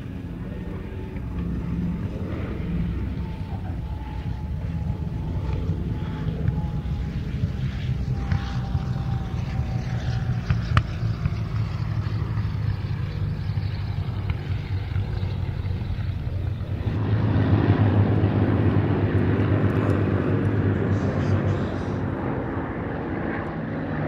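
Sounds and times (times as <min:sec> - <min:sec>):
propeller aircraft engine drone: 0:00.0 - 0:24.0.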